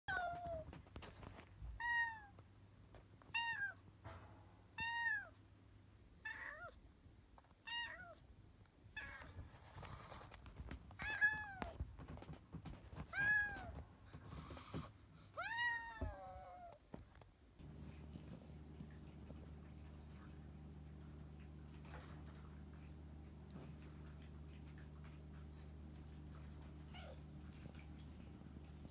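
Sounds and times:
kitten meowing: 1.8 - 2.4, 3.3 - 3.8, 4.8 - 5.4, 7.6 - 8.2, 15.4 - 16.8.

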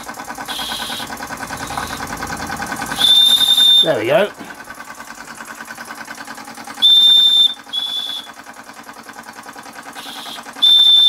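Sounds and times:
steam hissing: 0.0 - 4.6
model steam engine running: 0.0 - 11.0
high steam whistle toots: 0.4 - 2.1, 2.9 - 4.0, 6.8 - 8.4, 10.0 - 11.0.

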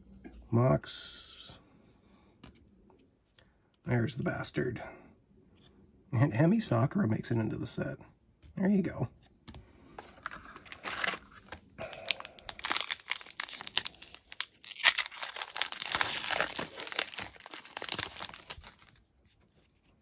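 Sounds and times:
foil wrapper crinkling: 10.2 - 19.2.

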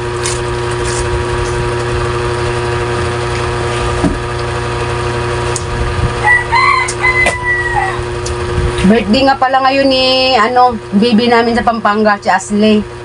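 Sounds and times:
small motor humming: 0.0 - 11.7
rooster crowing: 6.2 - 8.2.

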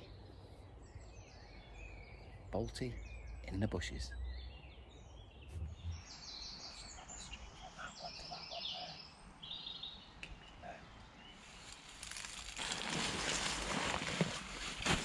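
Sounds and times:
songbirds singing: 0.0 - 14.8
faint background noise: 0.0 - 15.0
soft low thump: 5.5 - 6.1.

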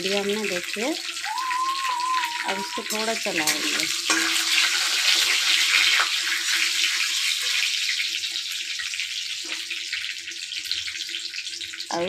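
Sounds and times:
spices sizzling in hot oil: 0.0 - 12.0
spatula scraping pan: 2.8 - 7.7.

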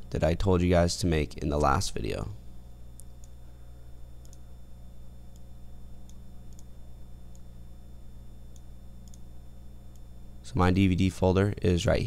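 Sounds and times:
steady low hum: 0.0 - 12.0
computer mouse clicks: 4.2 - 4.4, 5.3 - 6.7, 8.5 - 9.3.

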